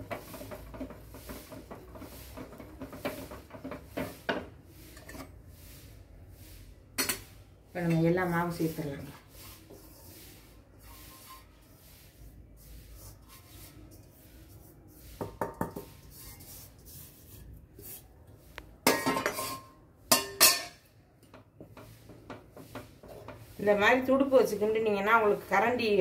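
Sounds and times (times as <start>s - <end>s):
steel bowl clinking against pot: 18.8s - 20.9s.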